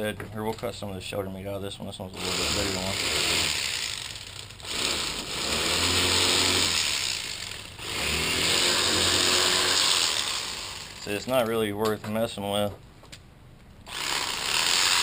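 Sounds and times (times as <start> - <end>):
electric fillet knife buzzing: 2.2 - 11.0, 13.9 - 15.0.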